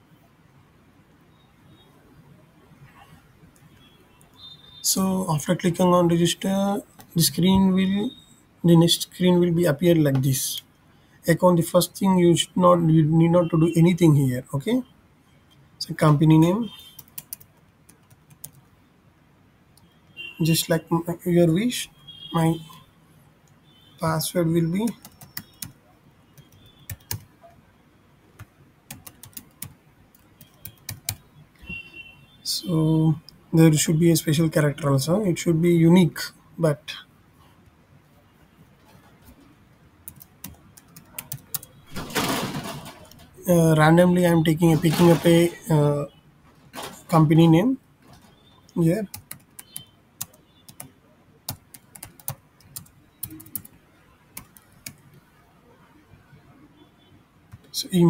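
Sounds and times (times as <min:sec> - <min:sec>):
computer keyboard typing: 0:16.1 - 0:18.7, 0:24.6 - 0:25.8, 0:26.4 - 0:27.6, 0:28.4 - 0:31.3, 0:40.0 - 0:43.4, 0:44.7 - 0:45.6, 0:48.7 - 0:53.8, 0:54.4 - 0:55.2, 0:57.5 - 0:57.7.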